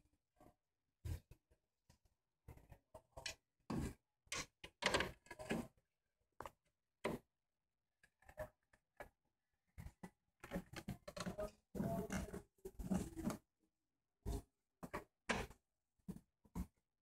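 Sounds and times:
faint scrapes and knocks: 0:09.8 - 0:13.5.

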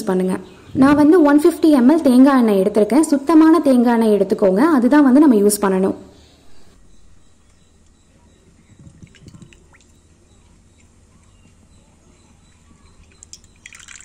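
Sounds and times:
small crackly ticks: 0:12.2 - 0:14.0
oil trickling into pan: 0:13.0 - 0:14.0.

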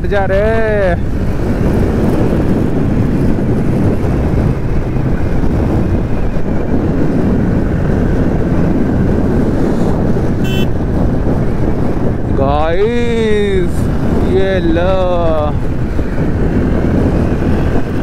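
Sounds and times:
motorcycle engine cruising: 0:00.0 - 0:18.0
wind rush on microphone: 0:00.0 - 0:18.0
short high beep: 0:10.4 - 0:10.7.

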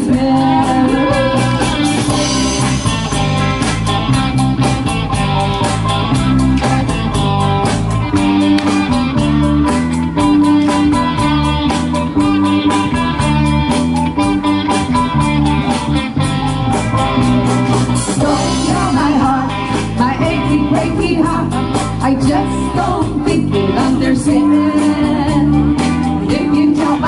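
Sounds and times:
bass line: 0:00.0 - 0:27.0
country-rock instrumental: 0:00.0 - 0:27.0
guitar: 0:00.0 - 0:27.0
steady drum beat: 0:00.0 - 0:27.0.

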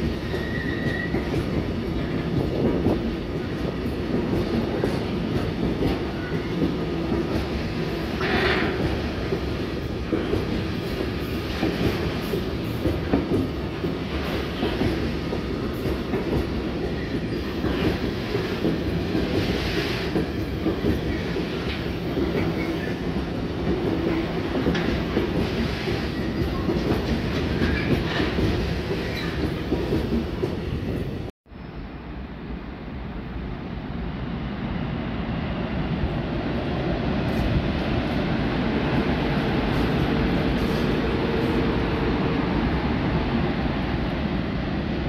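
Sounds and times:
freight train rolling past: 0:00.0 - 0:45.0.

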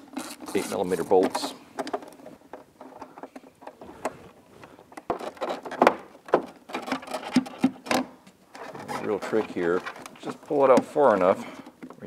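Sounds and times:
hands rubbing: 0:03.7 - 0:04.9.

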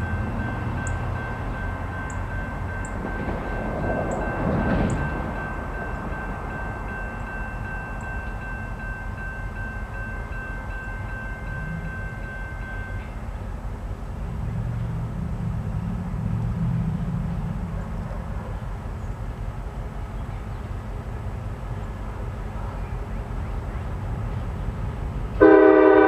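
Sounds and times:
distant diesel locomotive rumble: 0:00.0 - 0:26.0.

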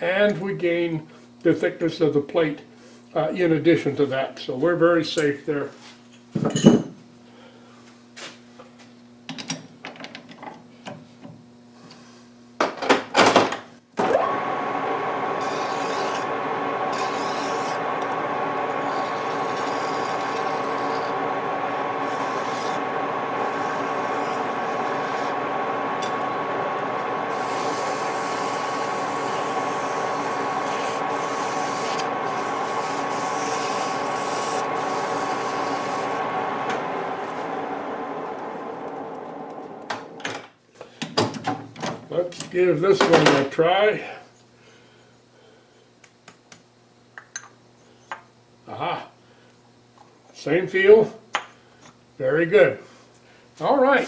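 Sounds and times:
metal lathe whining: 0:14.0 - 0:40.2
file rasping on metal: 0:15.4 - 0:16.2, 0:16.9 - 0:17.8, 0:27.3 - 0:36.0.

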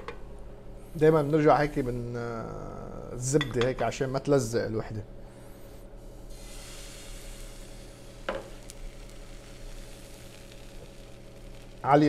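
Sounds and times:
frying pan sizzling: 0:06.2 - 0:12.0.

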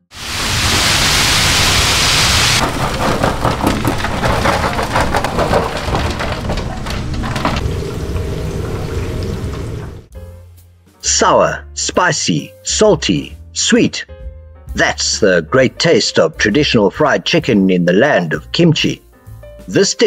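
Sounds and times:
chicken sizzling in deep-fryer oil: 0:00.0 - 0:02.6.

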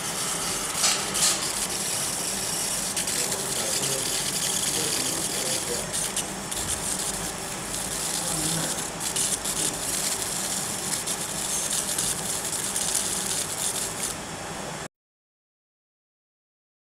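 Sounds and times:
laser marking machine hissing: 0:00.0 - 0:14.3.

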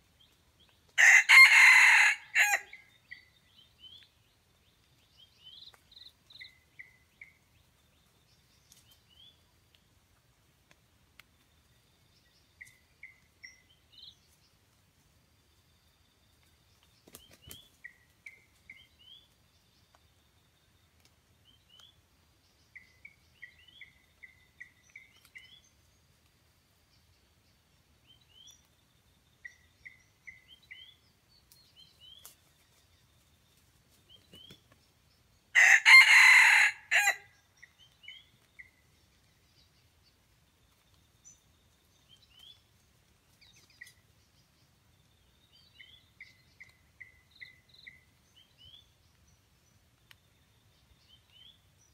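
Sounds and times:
rooster crowing: 0:01.0 - 0:02.8, 0:35.6 - 0:37.3.

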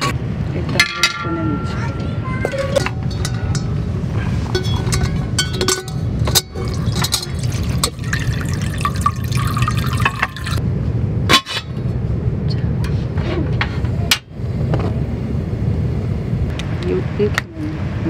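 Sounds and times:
steady low rumble: 0:00.1 - 0:18.0
metal cookware clinking: 0:00.7 - 0:10.6
water running into a metal pot: 0:04.5 - 0:10.6.

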